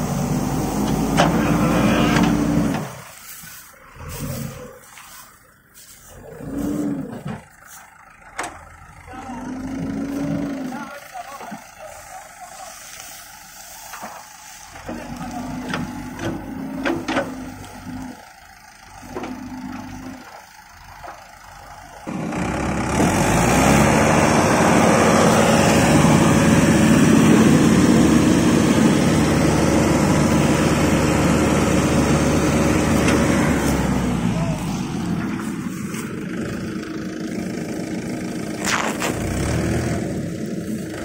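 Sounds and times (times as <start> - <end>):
engine running at high revs: 0.0 - 3.1, 3.9 - 5.0, 6.1 - 7.4, 9.2 - 10.8, 22.1 - 41.0
diesel engine ticking over unevenly: 0.0 - 41.0.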